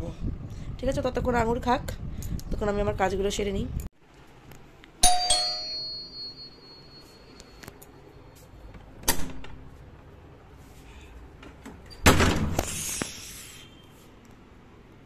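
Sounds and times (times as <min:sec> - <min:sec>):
doorbell chime: 0:05.0 - 0:07.6.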